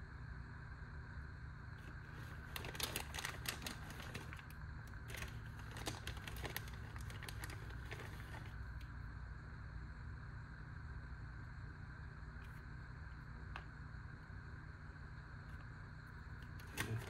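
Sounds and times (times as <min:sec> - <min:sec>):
steady low hum: 0:00.0 - 0:17.0
plastic bag crinkling: 0:01.8 - 0:08.8, 0:16.4 - 0:17.0.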